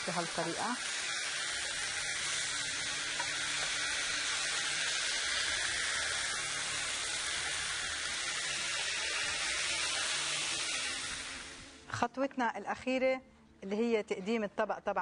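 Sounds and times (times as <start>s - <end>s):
chicken sizzling on a grill: 0.0s - 11.8s.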